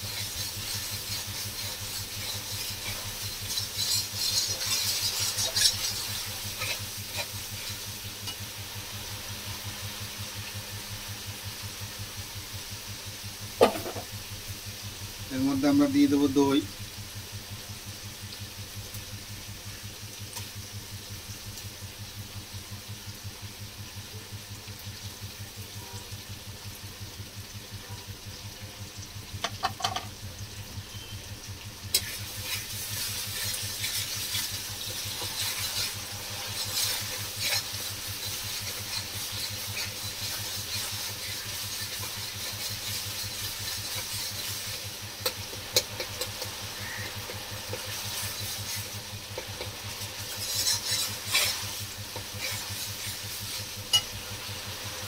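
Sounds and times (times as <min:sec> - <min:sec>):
metal spatula stirring: 0:00.0 - 0:08.4, 0:31.9 - 0:54.4
paste frying in oil: 0:00.0 - 0:55.0.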